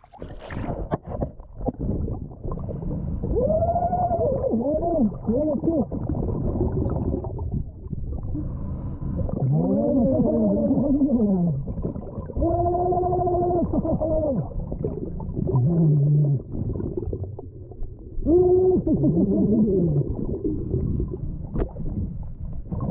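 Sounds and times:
underwater rumbling wash: 0.0 - 22.9
underwater moaning tones: 2.4 - 22.9.

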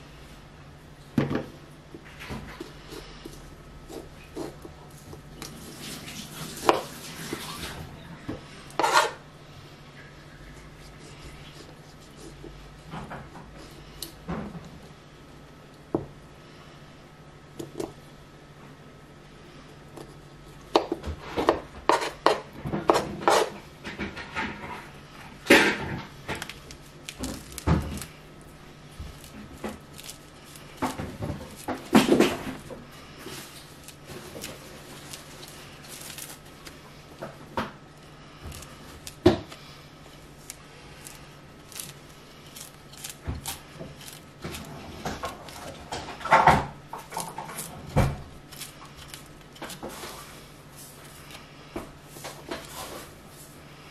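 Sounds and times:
knife scraping orange peel: 8.7 - 9.2, 21.5 - 23.6.

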